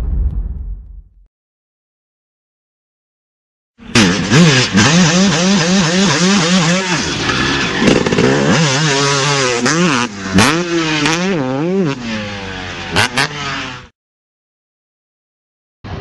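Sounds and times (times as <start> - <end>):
motorcycle engine revving: 3.8 - 13.9.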